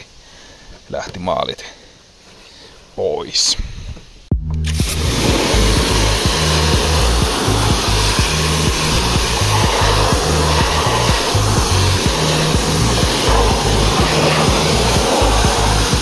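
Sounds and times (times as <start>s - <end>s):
background music with beat: 4.3s - 16.0s
pressure washer spraying: 4.6s - 16.0s.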